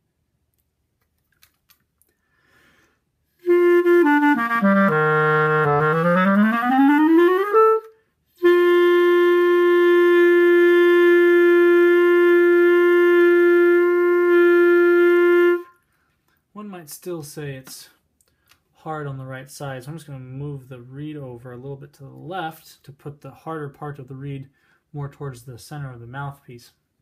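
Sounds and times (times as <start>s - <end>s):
clarinet playing: 3.4s - 15.8s.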